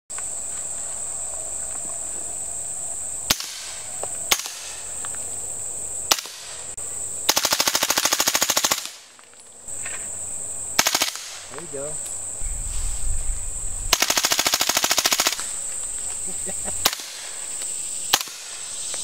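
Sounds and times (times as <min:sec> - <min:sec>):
high insect drone: 0:00.1 - 0:19.0
suppressed gunshots: 0:13.9 - 0:15.5.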